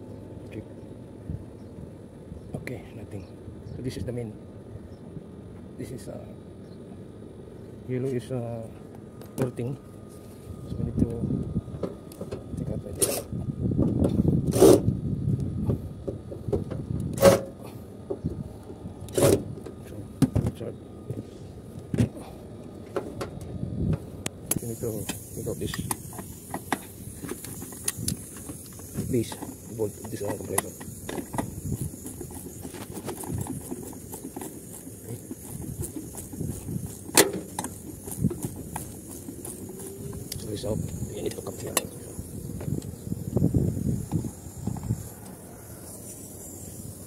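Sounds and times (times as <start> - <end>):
low rumble of handling noise: 0.0 - 47.0
wrench clicking and scraping: 13.0 - 13.3, 24.5 - 42.9.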